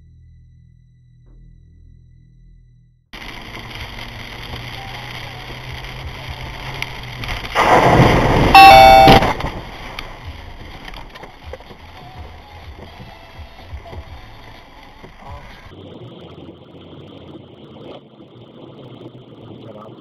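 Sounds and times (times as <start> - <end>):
heavy rain on car: 3.2 - 15.7
sudden loud rush of noise: 7.5 - 10.3
loud tone stepping down in pitch: 8.4 - 9.4.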